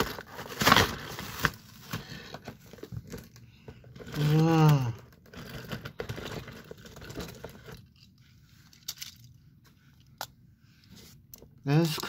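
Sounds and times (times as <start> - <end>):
toy packaging scraping and crinkling: 0.0 - 9.4.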